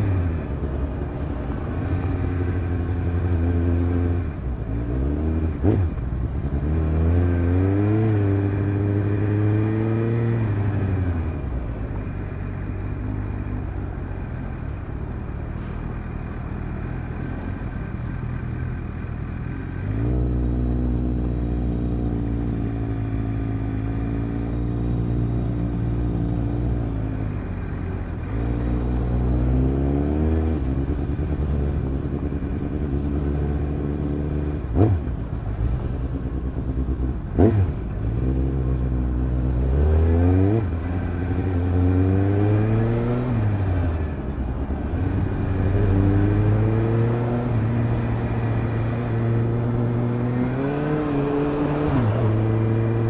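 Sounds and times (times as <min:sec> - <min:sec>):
motorcycle engine revving: 0:28.2 - 0:53.0.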